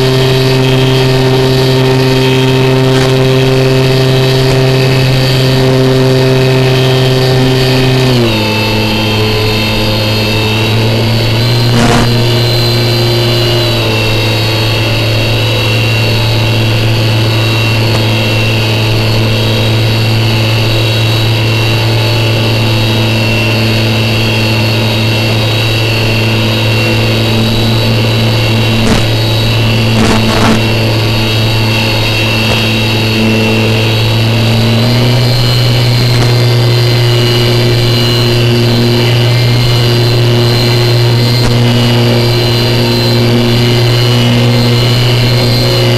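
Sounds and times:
electric motor and propeller drone: 0:00.0 - 0:45.9
brief crackles: 0:28.8 - 0:29.2.

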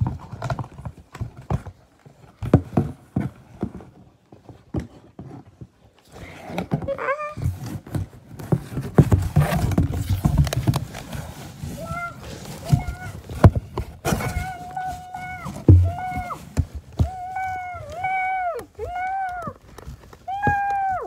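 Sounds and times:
animal scuffling and thumping: 0:00.0 - 0:21.0.

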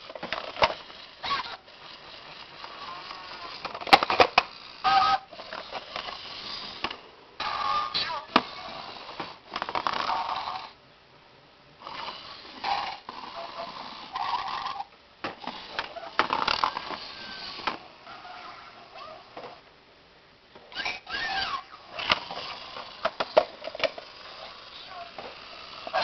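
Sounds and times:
toy motor whirring: 0:00.0 - 0:10.8, 0:11.8 - 0:19.6, 0:20.7 - 0:26.0.

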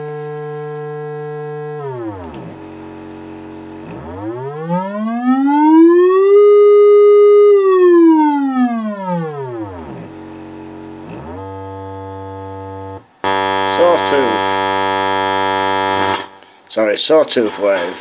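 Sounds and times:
test tone sweeping in pitch: 0:11.0 - 0:16.4.

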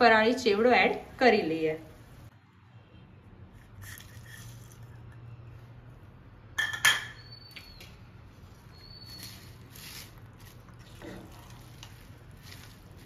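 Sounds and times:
fried potato sticks rustling: 0:08.3 - 0:13.0.

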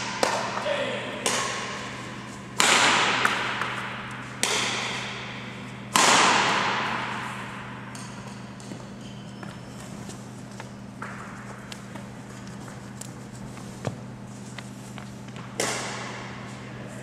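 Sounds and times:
badminton racket hitting shuttlecock: 0:00.0 - 0:08.8
low steady hum: 0:00.0 - 0:17.0.

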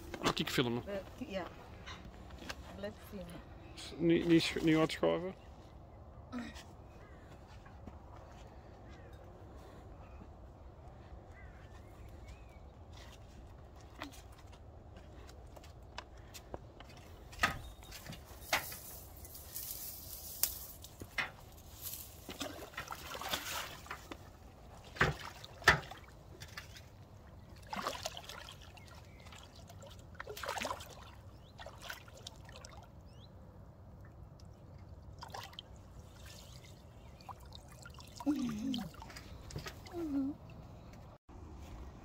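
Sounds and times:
water splashing: 0:22.1 - 0:33.0, 0:34.4 - 0:40.3
water dripping from net: 0:37.2 - 0:39.6.

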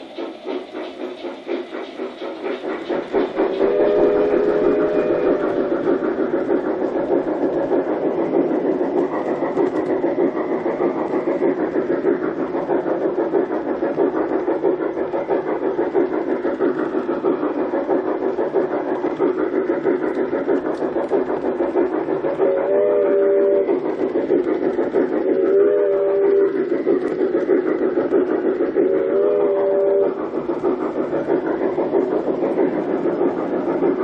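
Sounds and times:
model train wheels clattering: 0:00.0 - 0:34.0
train sound effects: 0:00.0 - 0:34.0
multi-tone train whistle: 0:03.5 - 0:06.1, 0:22.4 - 0:23.8, 0:25.4 - 0:26.6, 0:28.8 - 0:30.2.

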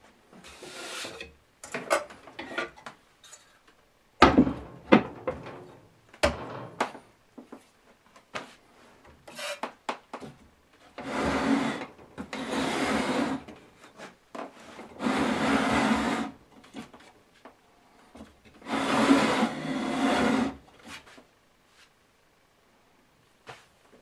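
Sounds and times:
wood scraping across bench: 0:11.0 - 0:16.9, 0:18.6 - 0:21.2.

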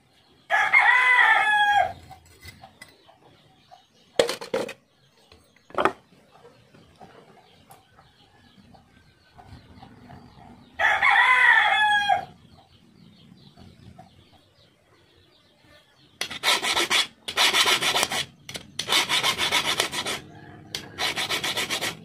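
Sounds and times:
rooster crowing: 0:00.5 - 0:02.0, 0:10.8 - 0:12.4, 0:20.1 - 0:21.7
hand file rasping on metal tube: 0:16.2 - 0:22.0.

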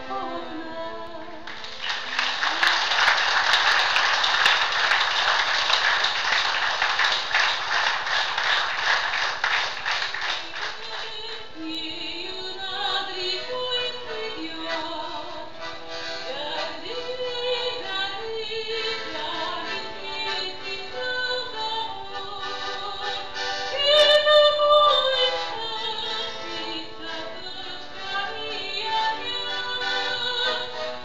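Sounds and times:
accordion music: 0:00.0 - 0:31.0
audience applauding: 0:01.5 - 0:11.4.

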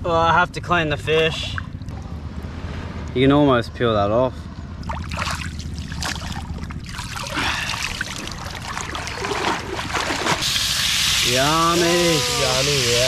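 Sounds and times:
person wading through water: 0:04.8 - 0:10.4
seawater splashing and trickling: 0:04.8 - 0:13.0
steady hiss: 0:10.4 - 0:13.0.

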